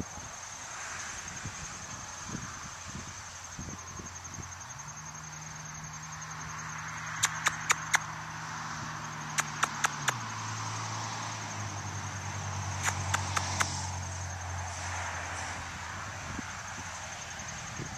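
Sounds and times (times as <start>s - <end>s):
insects trilling: 0.0s - 17.9s
low engine hum: 0.0s - 17.9s
quick sharp clicks: 7.2s - 8.0s, 9.4s - 10.2s.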